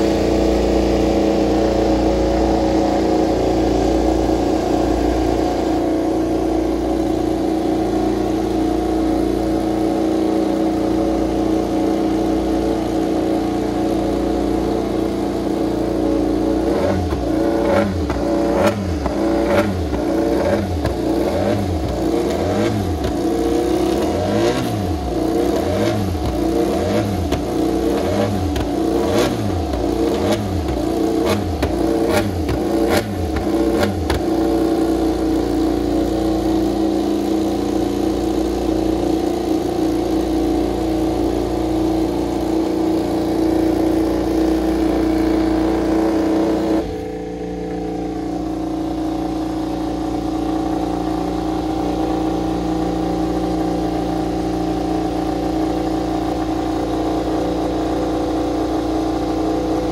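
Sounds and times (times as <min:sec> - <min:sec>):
motorcycle race engine: 0:00.0 - 0:59.9.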